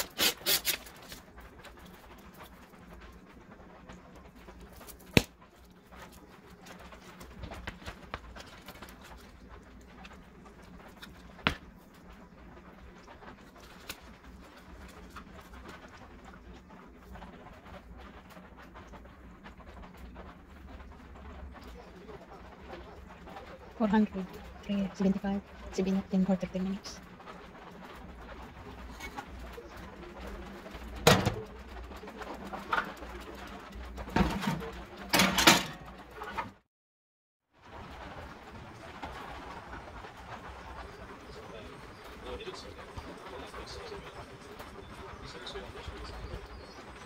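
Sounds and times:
dough handling noises: 0:00.0 - 0:36.6.

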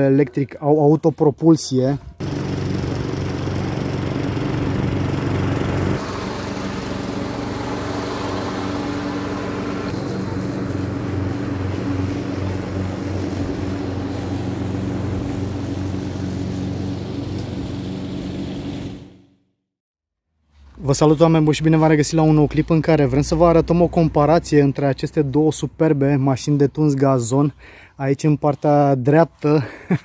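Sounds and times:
lawn mower running: 0:02.2 - 0:19.4.

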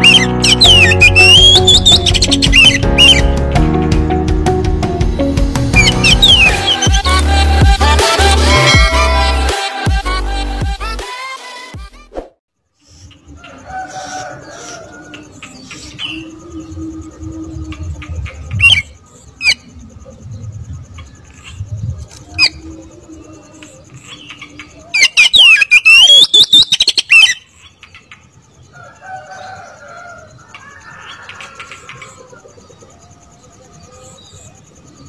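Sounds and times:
bird singing: 0:00.0 - 0:03.5, 0:05.6 - 0:07.2, 0:12.8 - 0:35.0.

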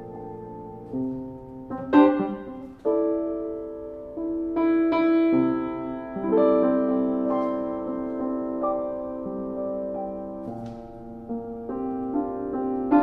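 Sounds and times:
upright piano chords: 0:00.0 - 0:13.0.

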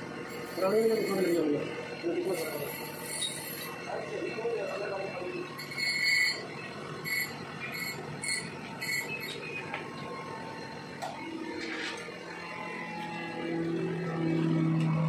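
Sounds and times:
low workshop background: 0:00.0 - 0:15.0
high-pitched metal scrapes: 0:00.3 - 0:03.8, 0:05.6 - 0:06.4, 0:07.0 - 0:09.4.

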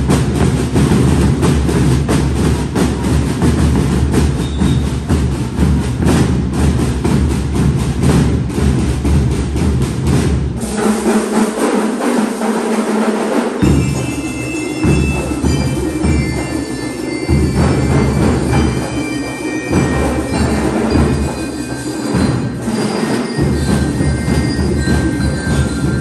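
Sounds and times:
bass drums: 0:00.0 - 0:10.6
snare drums: 0:00.0 - 0:26.0.

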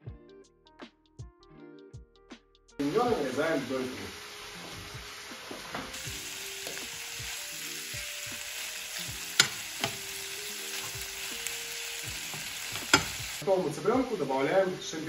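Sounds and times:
meat and onion sizzling in pan: 0:02.8 - 0:15.0
metal spoon clinking on pan: 0:09.4 - 0:10.0, 0:12.8 - 0:13.2.

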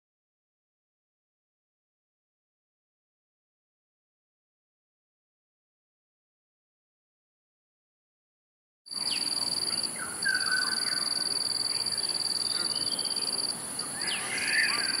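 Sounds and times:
insects trilling: 0:08.9 - 0:15.0
short bird calls: 0:09.0 - 0:15.0.

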